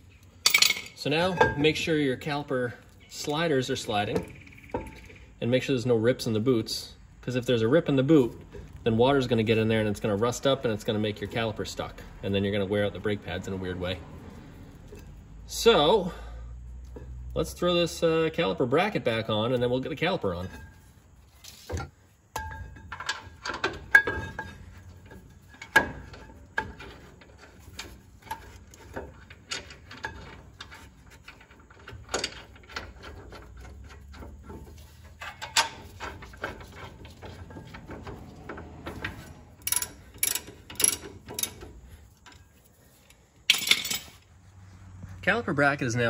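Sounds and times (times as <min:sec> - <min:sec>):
metal clinks and knocks: 0:00.1 - 0:06.3, 0:07.2 - 0:15.9, 0:16.8 - 0:44.3
ratchet clicks: 0:38.9 - 0:42.4.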